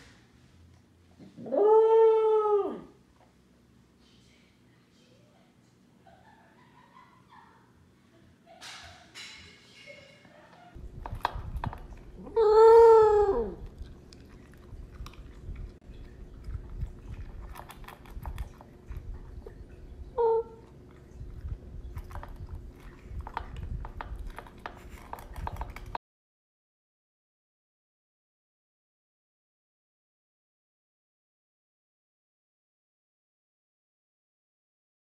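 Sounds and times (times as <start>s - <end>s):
dog howling: 1.3s - 3.0s, 12.2s - 13.8s, 20.1s - 20.6s
dog crunching food: 10.8s - 12.4s, 13.4s - 20.0s, 20.6s - 26.0s.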